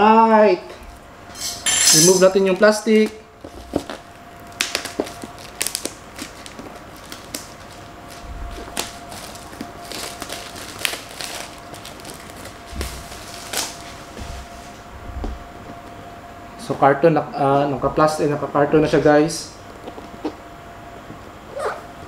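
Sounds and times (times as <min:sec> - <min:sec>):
plastic wrapping crinkling: 0:02.0 - 0:14.1.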